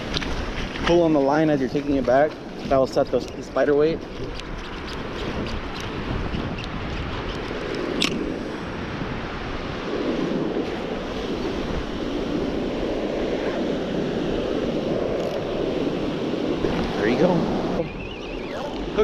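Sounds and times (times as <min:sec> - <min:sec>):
wind buffeting microphone: 0:00.0 - 0:19.0
surf breaking on beach: 0:07.1 - 0:18.0
sharp click: 0:08.0 - 0:08.2.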